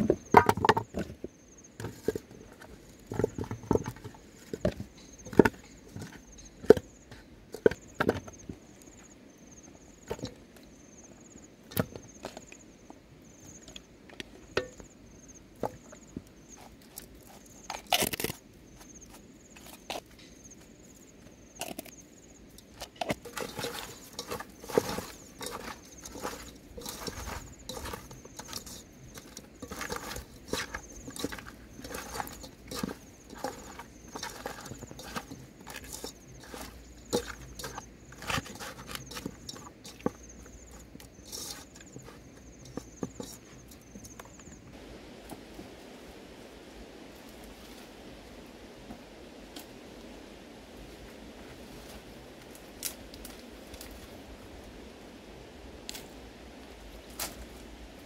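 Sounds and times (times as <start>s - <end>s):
hands squelching mixing food: 21.6s - 44.7s
food clattering into metal pot: 22.9s - 44.2s.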